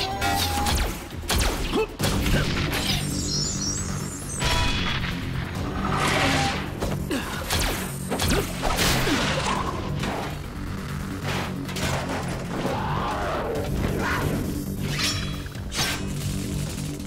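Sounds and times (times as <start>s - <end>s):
tense background music: 0.0s - 17.0s.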